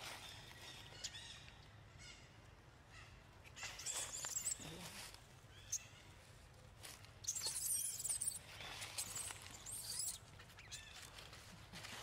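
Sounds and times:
monkey squealing: 0:09.0 - 0:10.8.

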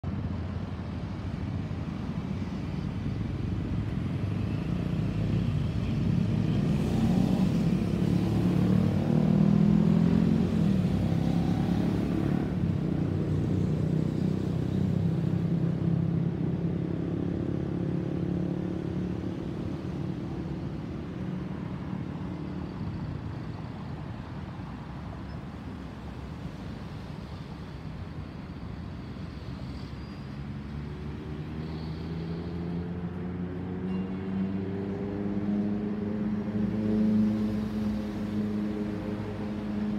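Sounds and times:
jet plane flying over: 0:00.1 - 0:09.2.

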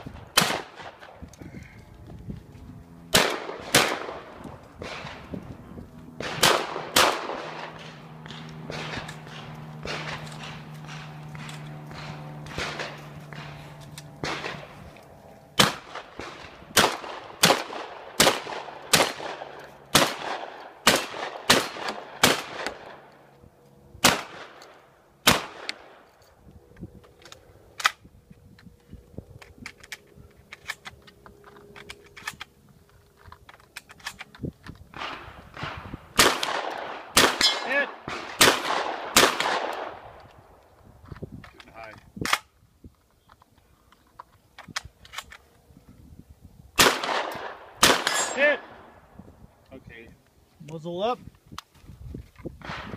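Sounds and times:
shotgun shots: 0:00.3 - 0:01.2, 0:03.1 - 0:05.3, 0:06.2 - 0:13.6, 0:14.2 - 0:14.8, 0:15.6 - 0:23.1, 0:24.0 - 0:24.6, 0:25.2 - 0:26.0, 0:35.0 - 0:40.2, 0:46.8 - 0:49.0.

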